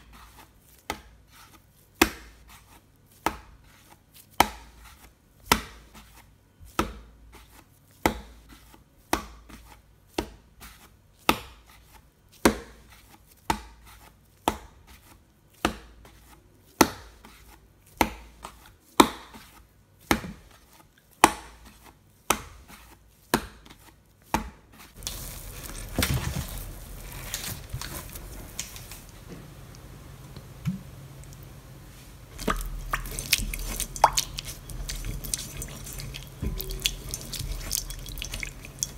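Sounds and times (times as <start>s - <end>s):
dough thudding on wooden board: 12.4s - 12.8s, 15.6s - 16.1s, 21.2s - 25.1s
brush rubbing glass bowl: 32.4s - 38.9s.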